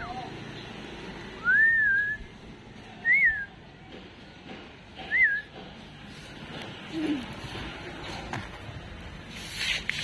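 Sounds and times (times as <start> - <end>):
person whistling: 1.4 - 2.3, 5.1 - 5.5.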